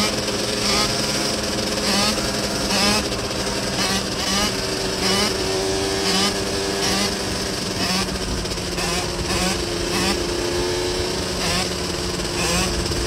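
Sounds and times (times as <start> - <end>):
dirt bike engine surging: 0.0 - 13.0.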